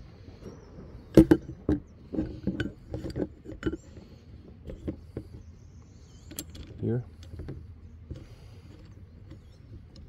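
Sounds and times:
metal parts clinking: 6.2 - 7.5.

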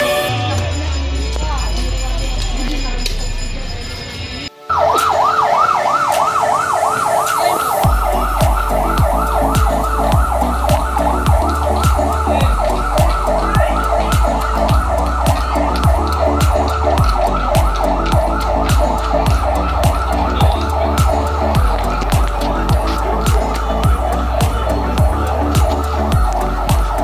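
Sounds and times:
yelp siren: 4.5 - 27.0
deep steady drumbeat: 7.8 - 27.0.

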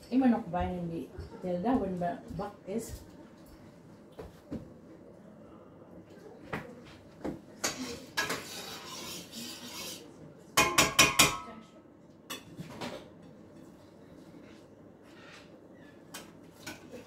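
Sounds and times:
loud cookware clanks: 7.6 - 9.6, 10.6 - 11.6
kitchen utensils clinking: 7.6 - 10.0
cookware scraping: 7.6 - 11.5, 12.3 - 17.0.

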